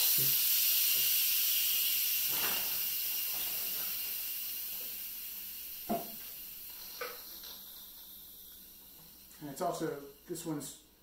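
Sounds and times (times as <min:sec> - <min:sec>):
steam release valve hissing: 0:00.0 - 0:10.8.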